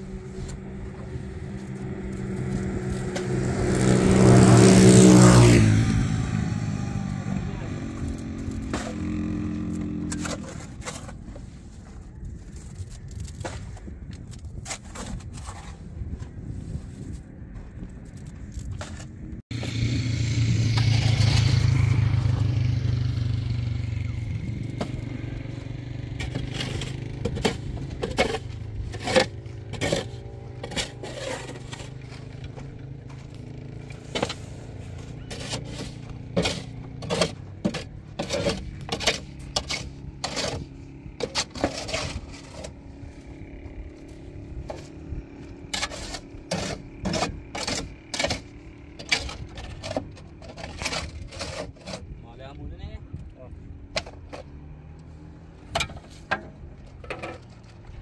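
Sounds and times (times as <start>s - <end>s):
shovel scraping and clanking on metal: 0.0s - 17.2s, 18.0s - 52.2s, 53.8s - 58.0s
low rumble: 0.0s - 46.5s.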